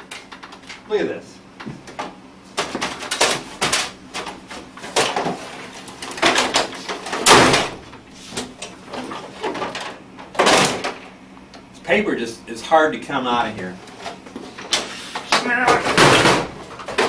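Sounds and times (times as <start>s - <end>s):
printer plastic rattling and clunking: 1.9s - 11.0s, 13.9s - 17.0s.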